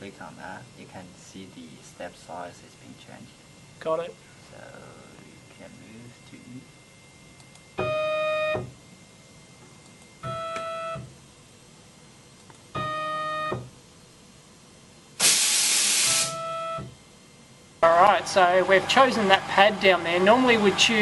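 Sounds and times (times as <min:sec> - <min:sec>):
air hiss: 0:15.2 - 0:16.4.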